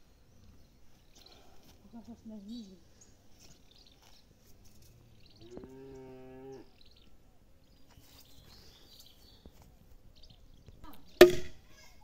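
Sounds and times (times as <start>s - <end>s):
cow mooing: 5.4s - 6.7s.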